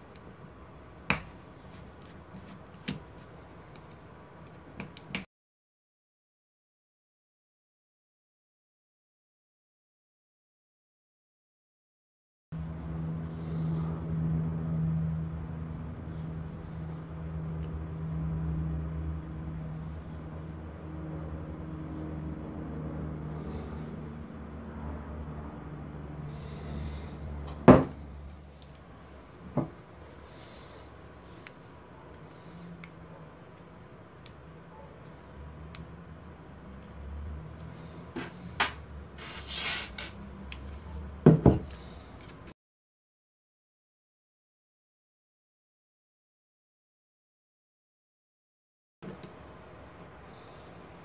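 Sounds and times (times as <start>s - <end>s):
low mechanical hum: 12.6s - 42.5s
metal scrape: 39.2s - 40.2s.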